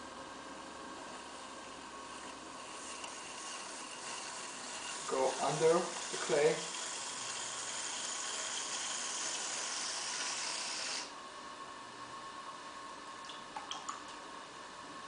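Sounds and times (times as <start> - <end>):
potter's wheel humming: 0.0 - 13.6
tool scraping clay: 2.2 - 11.1.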